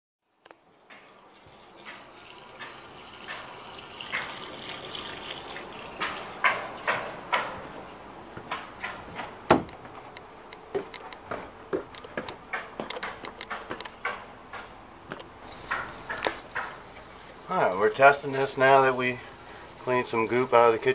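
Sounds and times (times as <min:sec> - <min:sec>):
water rushing from hose into drain: 0:00.7 - 0:07.0, 0:15.4 - 0:20.9
footsteps: 0:05.9 - 0:17.4.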